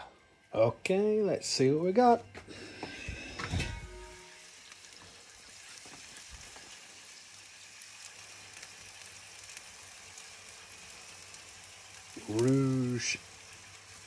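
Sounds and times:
meat sizzling over charcoal: 0.0s - 14.0s.

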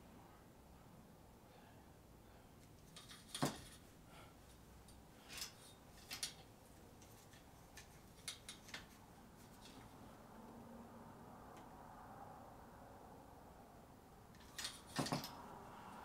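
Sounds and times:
soft ticks and rustles: 2.6s - 10.0s.

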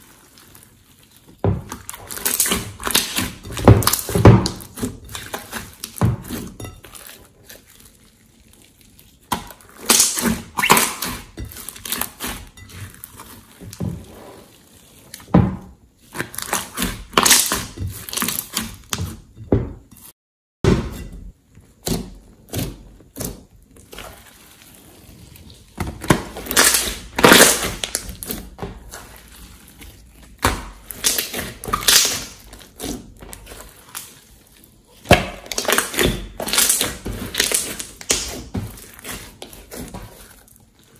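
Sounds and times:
slime squishing and popping: 0.0s - 6.7s, 7.4s - 12.4s, 16.1s - 19.1s, 25.9s - 29.3s, 30.4s - 34.2s, 35.0s - 40.1s.

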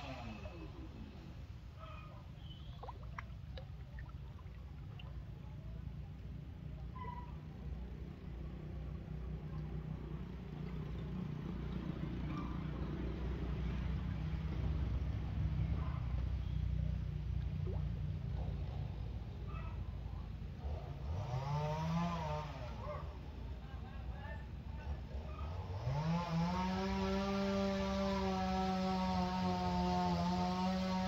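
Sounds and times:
low motor-like rumble: 0.0s - 21.0s.

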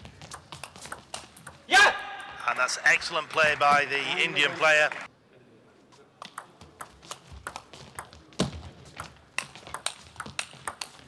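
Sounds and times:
table tennis ball tapping: 0.2s - 2.3s, 6.2s - 11.0s.

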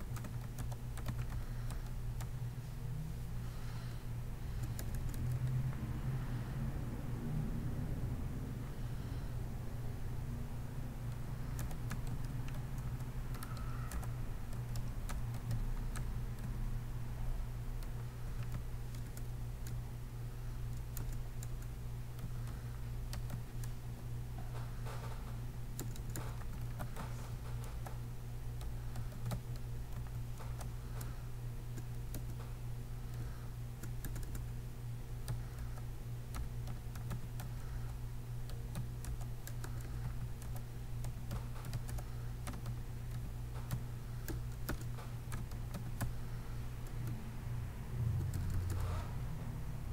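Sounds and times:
keyboard typing: 0.0s - 2.4s, 4.5s - 5.8s, 11.1s - 16.7s, 17.7s - 19.8s, 20.7s - 28.0s, 28.6s - 34.6s, 35.2s - 47.2s, 48.2s - 49.1s
steady low hum: 0.0s - 49.9s.

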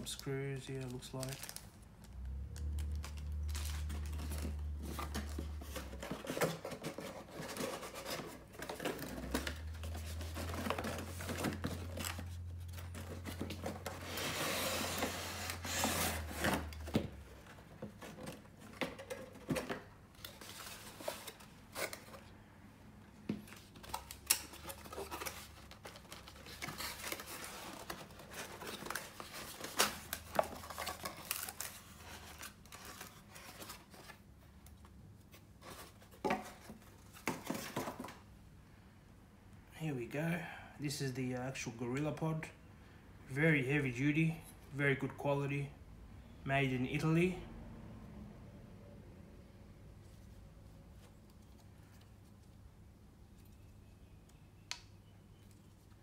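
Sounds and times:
cardboard rubbing and scraping: 4.4s - 16.8s.

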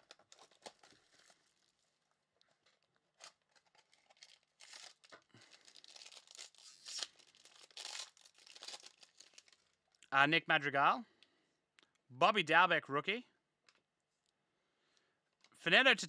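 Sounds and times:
foil wrapper tearing: 0.0s - 2.0s, 3.1s - 9.7s.

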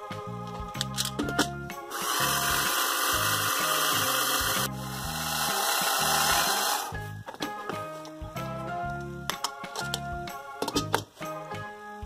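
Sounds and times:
background music: 0.0s - 12.0s
toy blender motor whirring: 1.9s - 6.9s.

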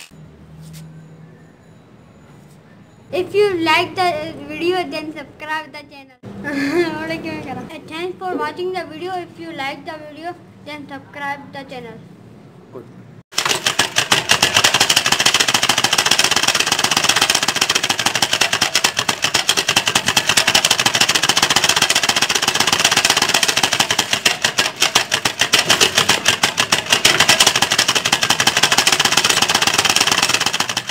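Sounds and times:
card flicking against bicycle spokes: 13.4s - 30.9s.

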